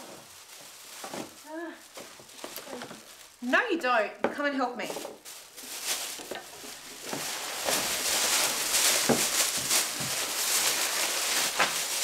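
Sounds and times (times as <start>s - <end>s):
plastic bags rustling: 0.0s - 12.0s.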